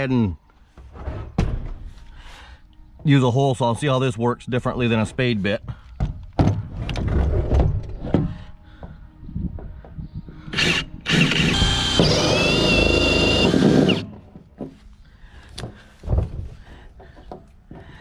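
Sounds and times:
drill cutting through plastic: 10.5s - 14.1s.

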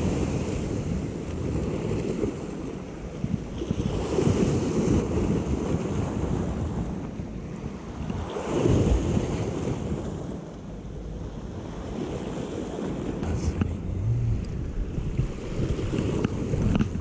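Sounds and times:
wind buffeting microphone: 0.0s - 17.0s
sea waves washing against rocks: 11.3s - 17.0s.

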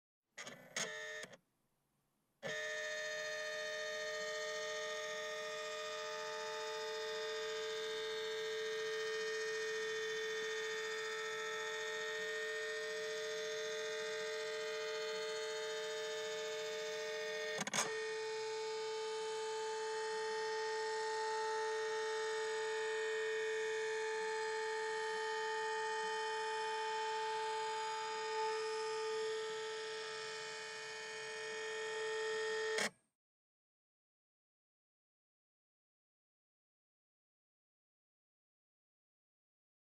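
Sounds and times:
scanner motor whine: 2.4s - 32.9s.

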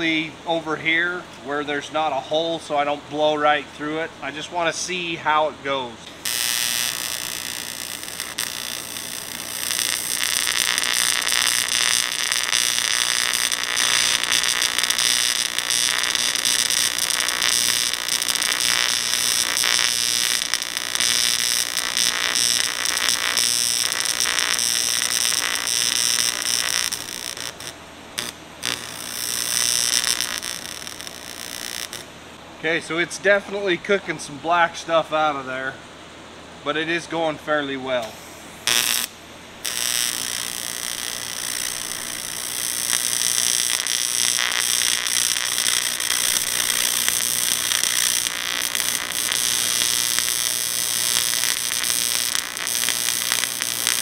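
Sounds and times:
welding arc buzzing: 6.1s - 32.1s, 38.0s - 54.0s.

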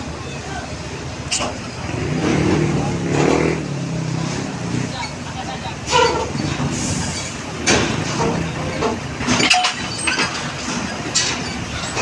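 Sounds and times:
heavy truck rumbling: 0.0s - 12.0s
sharp metallic clanks: 5.9s - 12.0s.

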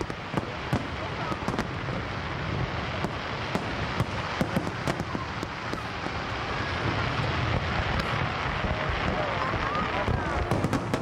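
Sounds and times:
sharp firework cracks: 0.0s - 11.0s
firework shells bursting: 3.0s - 11.0s.

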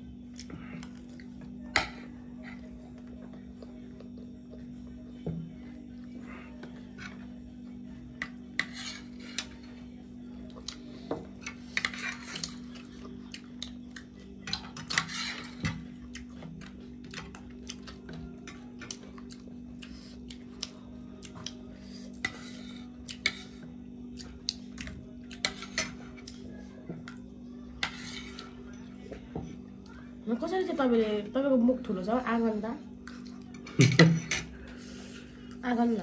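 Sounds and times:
steady low hum: 0.0s - 36.0s
cutlery scraping plates: 11.4s - 12.6s, 14.5s - 15.8s, 33.6s - 34.6s.

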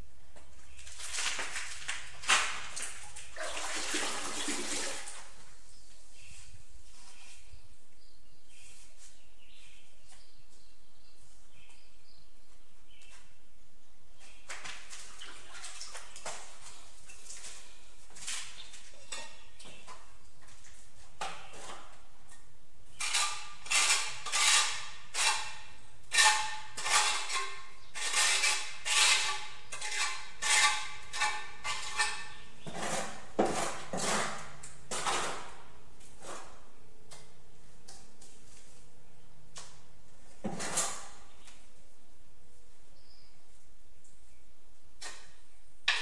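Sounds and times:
trowel scraping mortar: 23.0s - 35.6s, 40.4s - 41.2s.

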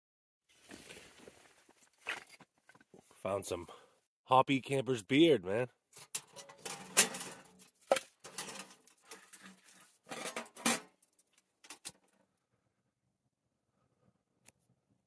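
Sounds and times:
firewood clattering and knocking: 6.0s - 10.9s
wood clinking on metal: 6.0s - 12.1s.

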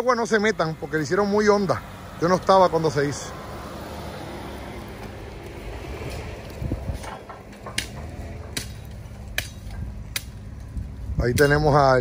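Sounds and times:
sharp clicks or knocks: 7.0s - 10.4s.

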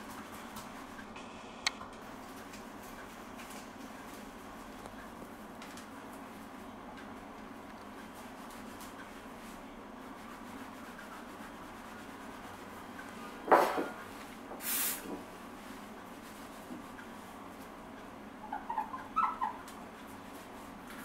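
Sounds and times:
short hiss: 14.6s - 15.1s.

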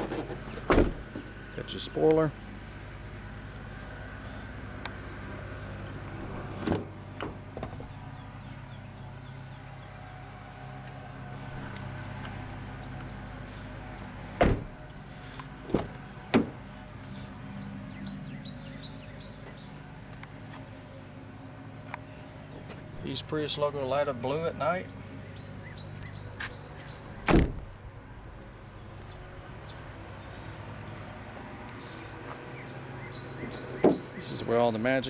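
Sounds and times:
car doors thudding shut: 0.1s - 1.3s, 6.4s - 8.0s, 14.3s - 14.9s, 15.6s - 16.7s, 27.2s - 27.9s, 33.8s - 34.2s.

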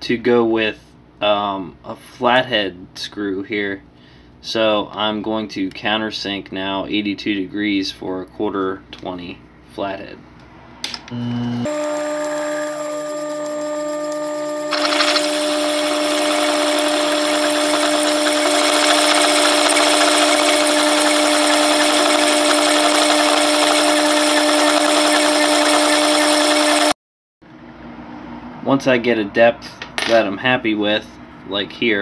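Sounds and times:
milling machine spindle whine: 11.2s - 26.9s.

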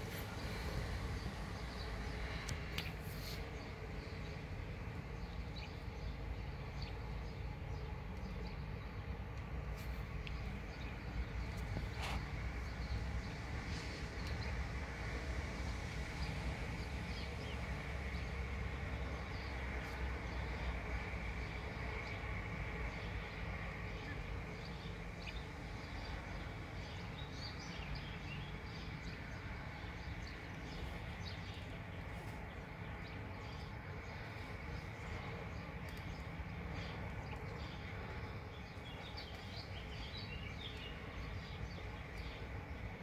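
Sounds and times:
low outdoor rumble: 0.0s - 43.0s
small birds chirping: 20.6s - 43.0s.

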